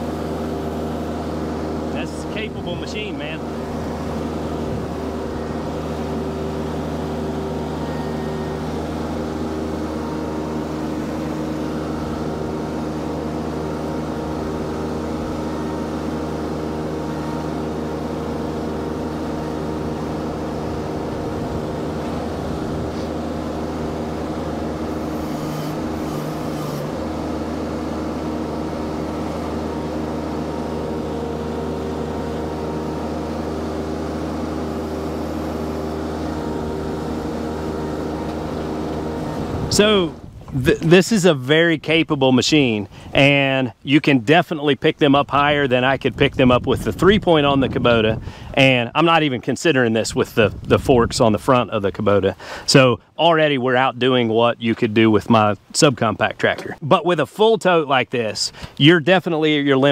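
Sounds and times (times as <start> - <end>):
skid steer engine running: 0.0 - 55.7, 56.3 - 59.9.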